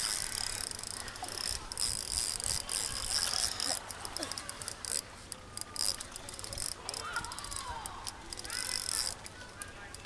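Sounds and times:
fishing reel clicking whir: 0.0s - 10.0s.

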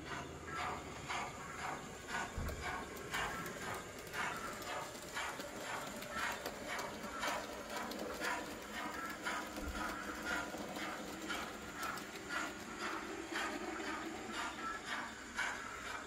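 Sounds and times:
model train running hum: 0.0s - 16.0s
model train wheels clicking: 0.0s - 16.0s.

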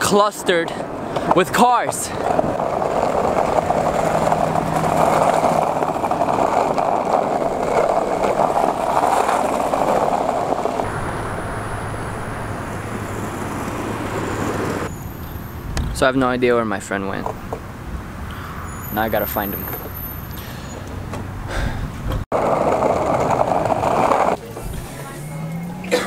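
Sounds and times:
cars moving and queuing: 0.0s - 26.0s
road hum: 0.0s - 26.0s.

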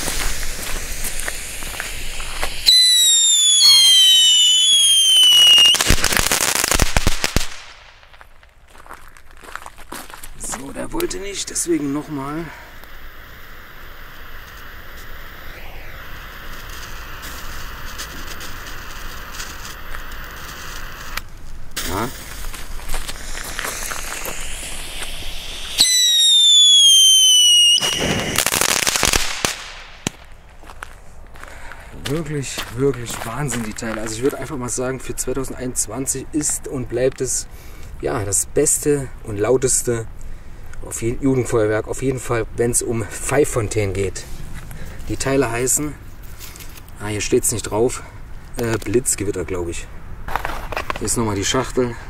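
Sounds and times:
firework whistles gliding down: 0.0s - 8.2s, 11.0s - 22.3s, 23.0s - 30.4s
crackling firework pops: 0.0s - 9.3s, 12.8s - 30.9s, 50.3s - 51.8s.

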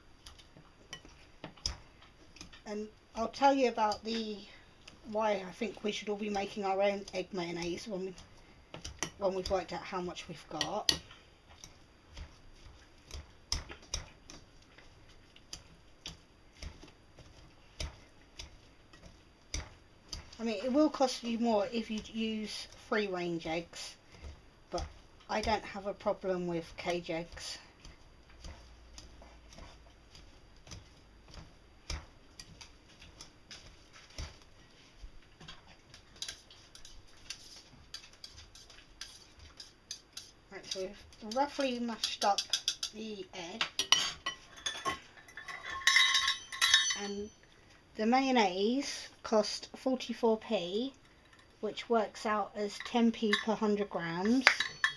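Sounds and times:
metal masher tapping glass bowl: 37.9s - 43.0s, 52.8s - 53.6s, 54.2s - 54.9s.

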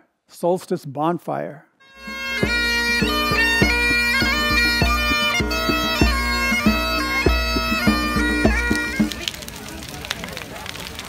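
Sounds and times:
bagpipe playing a tune: 1.8s - 9.3s.

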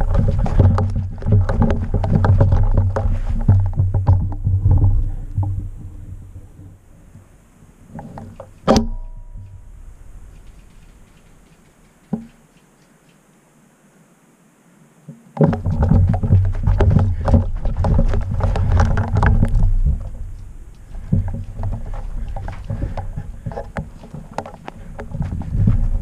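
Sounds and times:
running footsteps on dry dirt: 0.0s - 5.8s, 15.4s - 26.0s
microphone knocking: 0.0s - 6.8s, 15.4s - 26.0s
wind on microphone: 0.0s - 11.6s, 15.4s - 26.0s.

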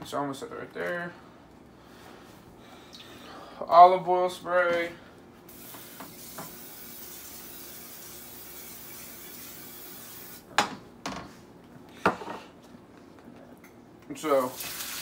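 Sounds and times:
cooking spray hissing into pan: 5.5s - 10.5s, 14.4s - 15.0s.

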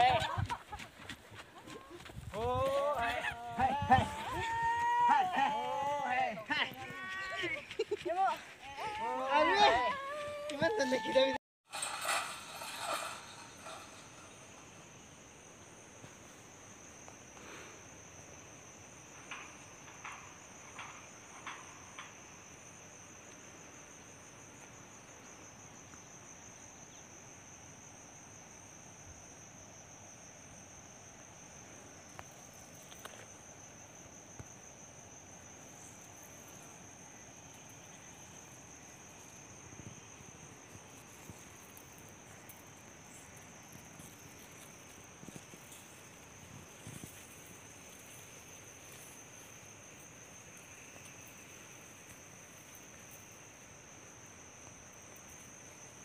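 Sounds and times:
insects trilling: 0.0s - 56.0s.

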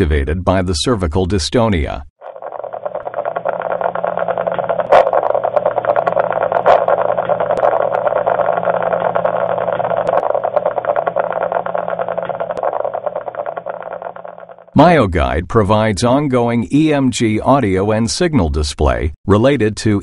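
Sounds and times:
dense fast crackling static: 2.2s - 14.9s.

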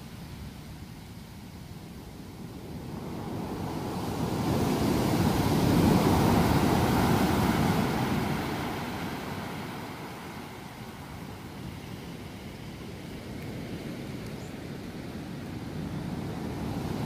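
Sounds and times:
ocean wave breaking on beach: 2.4s - 17.0s.

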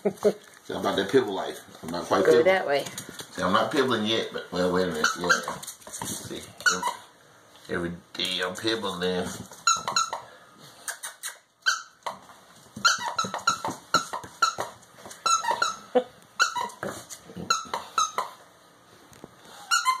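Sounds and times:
squeaky dog toy squeaking: 4.9s - 5.6s, 6.6s - 7.1s, 9.6s - 10.2s, 11.1s - 12.2s, 12.8s - 16.8s, 17.4s - 18.4s, 19.6s - 20.0s.

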